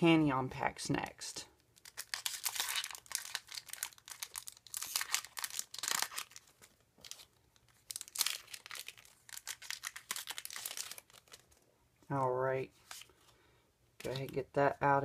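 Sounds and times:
foil wrapper crinkling and tearing: 1.7s - 11.6s.

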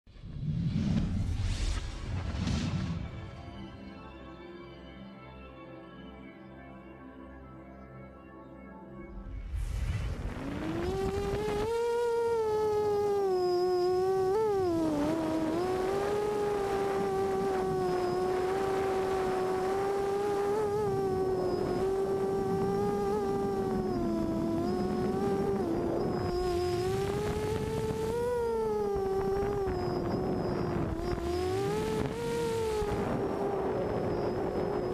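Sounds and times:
quadcopter motors whining: 9.8s - 34.9s.

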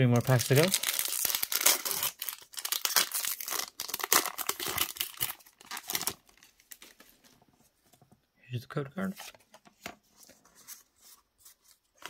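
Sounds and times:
foil wrapper crinkling and tearing: 0.2s - 6.9s.

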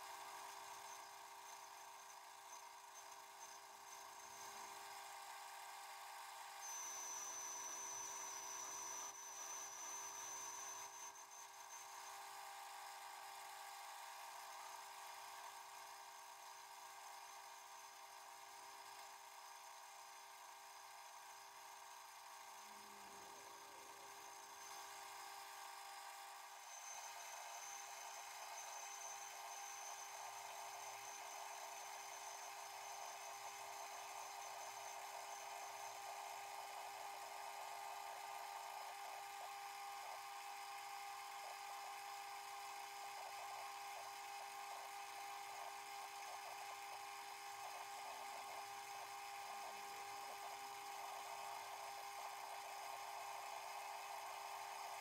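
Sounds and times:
thin high whine: 0.0s - 55.0s
metal lathe humming: 24.0s - 54.9s.

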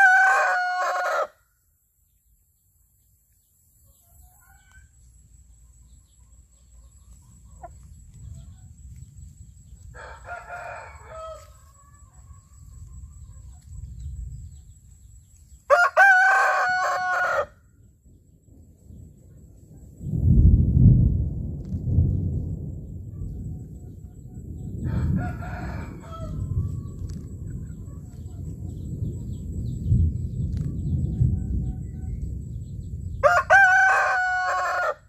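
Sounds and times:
rooster crowing: 0.0s - 1.4s, 9.9s - 12.6s, 15.7s - 17.6s, 24.8s - 27.0s, 33.2s - 35.0s.

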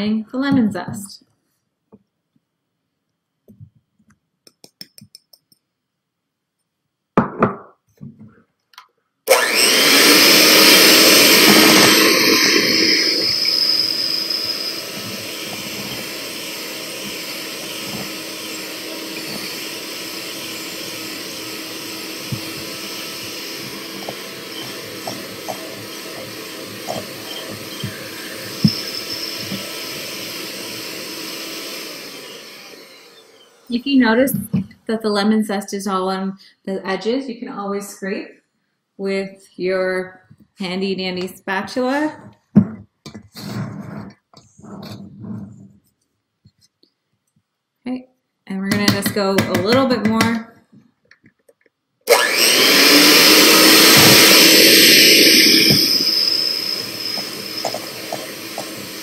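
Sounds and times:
electric mixer beating batter: 9.3s - 33.7s, 52.1s - 59.0s.

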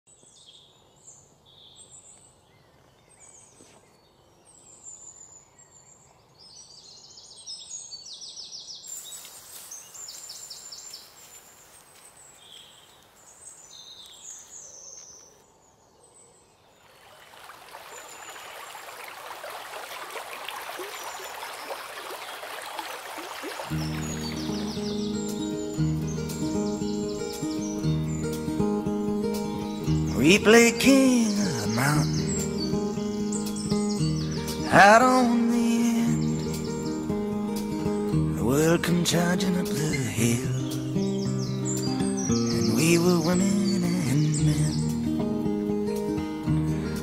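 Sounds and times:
birds singing: 0.1s - 47.0s
water pouring from trough: 17.0s - 24.1s.

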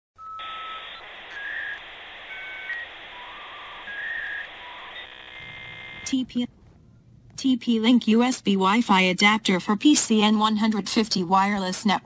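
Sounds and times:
buzzy tone: 0.4s - 6.6s.

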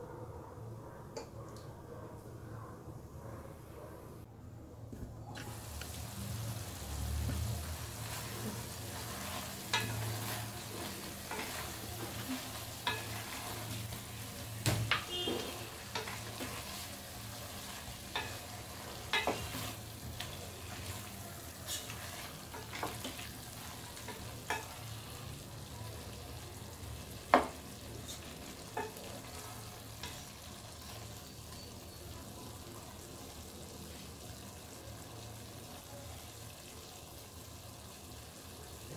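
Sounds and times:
low sizzle: 5.2s - 38.9s
spatula clacking against metal: 9.0s - 16.8s, 17.8s - 20.3s, 24.0s - 24.9s.

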